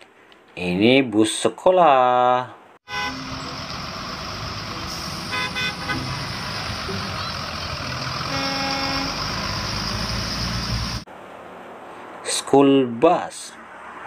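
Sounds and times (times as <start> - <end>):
horn toot: 2.8 - 3.7, 4.8 - 10.0
diesel bus engines: 2.9 - 12.4
tyre hiss on wet road: 4.2 - 6.8.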